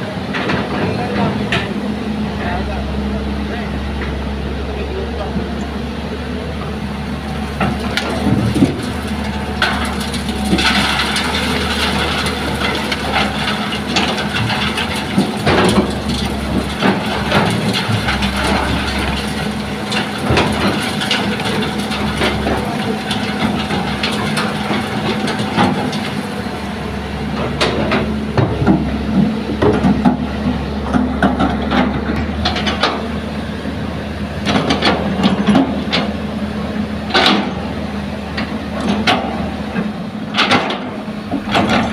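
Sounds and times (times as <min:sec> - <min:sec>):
excavator diesel engine running: 0:00.0 - 0:41.9
rocks clattering on metal: 0:07.6 - 0:26.6.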